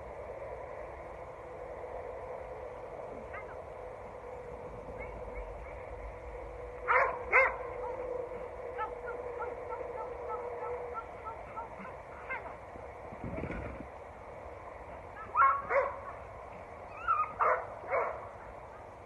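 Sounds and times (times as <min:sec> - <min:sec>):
faint steady hum: 0:00.0 - 0:19.0
dog barking: 0:06.8 - 0:08.1, 0:08.8 - 0:12.6, 0:15.2 - 0:16.2, 0:17.1 - 0:18.2.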